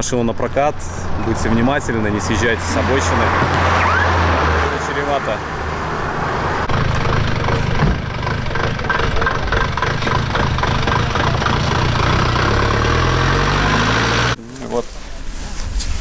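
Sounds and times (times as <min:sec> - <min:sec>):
vehicle engine running: 0:06.6 - 0:14.4.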